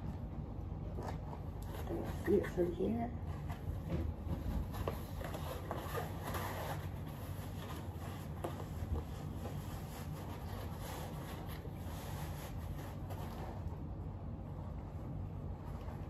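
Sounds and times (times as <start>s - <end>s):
fabric rustling and rubbing: 1.3s - 13.8s.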